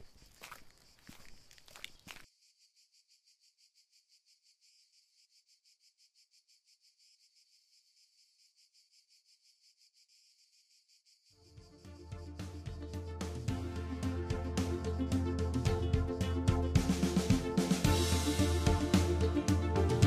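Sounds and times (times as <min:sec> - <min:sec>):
faint insect chirping: 0:00.0 - 0:13.0.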